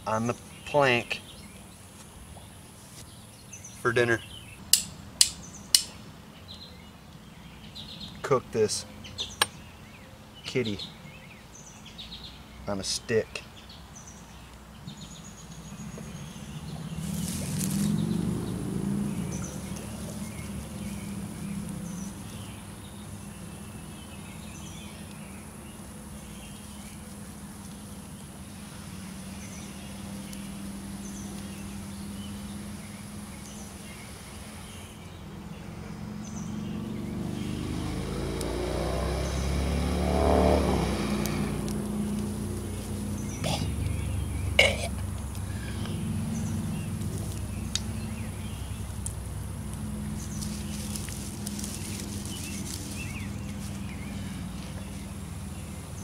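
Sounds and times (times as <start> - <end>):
passing motor engine droning: 15.2 - 56.0.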